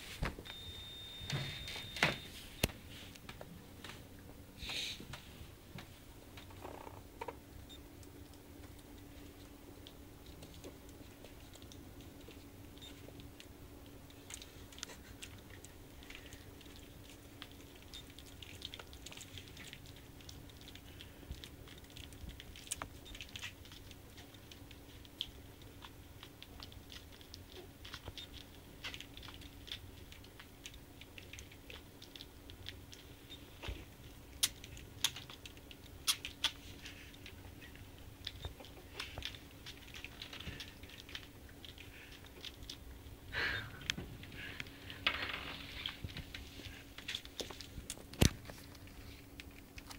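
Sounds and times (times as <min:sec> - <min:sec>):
steady low hum: 0:00.0 - 0:49.9
puppies nibbling and clicking: 0:05.1 - 0:49.9.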